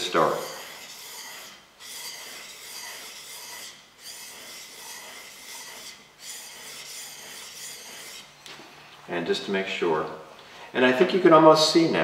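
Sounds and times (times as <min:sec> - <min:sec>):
blade rubbing on whetstone: 0:00.0 - 0:08.4.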